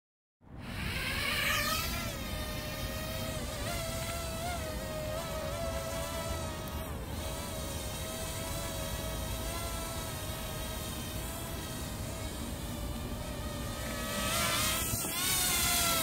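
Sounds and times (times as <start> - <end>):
drone rotors buzzing: 0.6 - 16.0.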